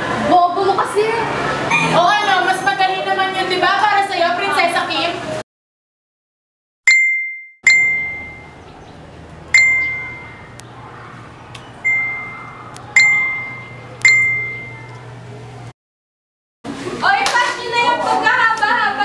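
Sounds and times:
electronic notification pings: 6.9 - 8.6, 9.6 - 10.6, 11.8 - 14.9.

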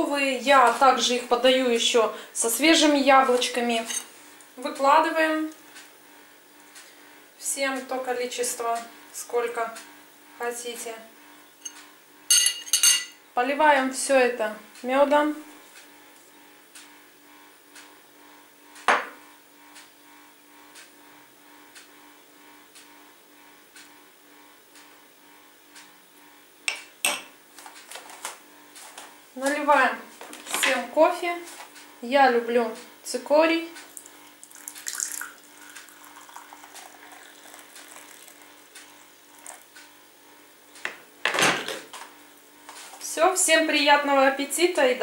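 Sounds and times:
metal spoon clinking dish: 11.6 - 13.2
low steady hum: 26.3 - 45.0
drink pouring into ceramic cup: 33.9 - 39.7.

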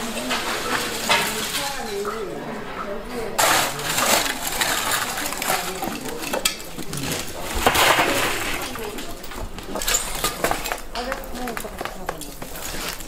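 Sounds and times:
charcoal chunks clinking and tumbling: 0.0 - 2.3, 3.4 - 13.0
metal rake scraping: 3.4 - 9.2.

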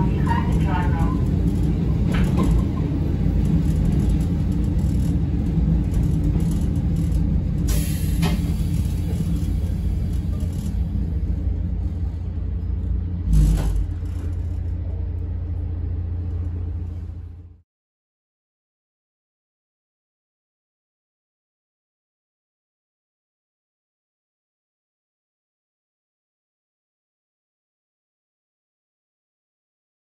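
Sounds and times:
railcar engine and wheels rumbling: 0.0 - 17.6.

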